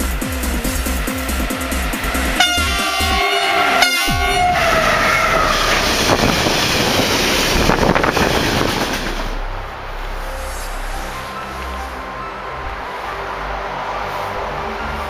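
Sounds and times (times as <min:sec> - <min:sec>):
freight wagons rumbling and clattering: 0:00.0 - 0:10.1
locomotive horn: 0:01.9 - 0:08.7.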